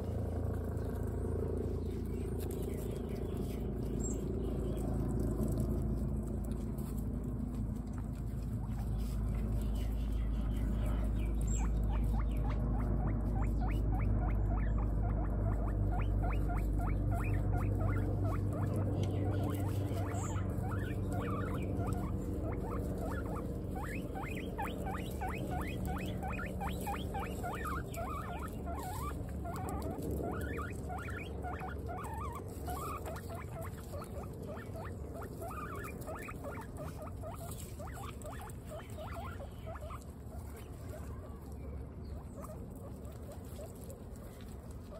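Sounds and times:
guinea pigs crunching pellets: 0.0s - 44.9s.

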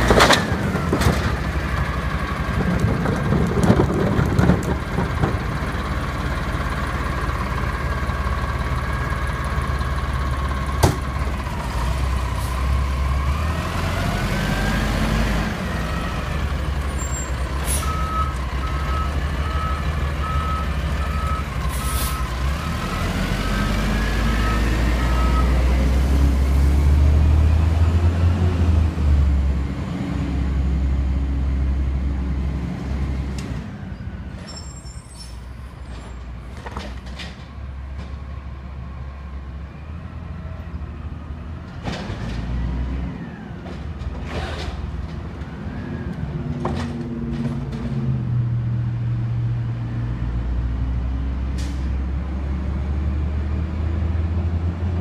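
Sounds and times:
diesel truck engine: 0.0s - 55.0s
reversing beeper: 16.9s - 25.6s.

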